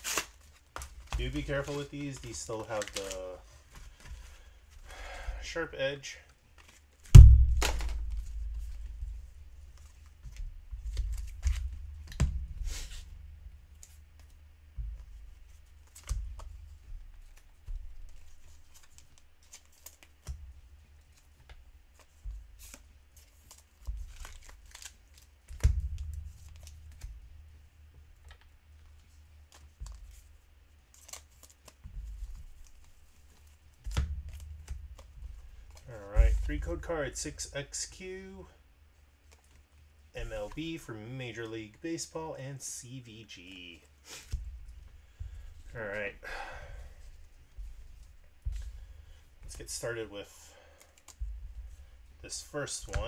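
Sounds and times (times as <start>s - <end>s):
foil wrappers crinkling and tearing: 0.0s - 4.5s, 22.0s - 27.1s, 30.9s - 36.3s.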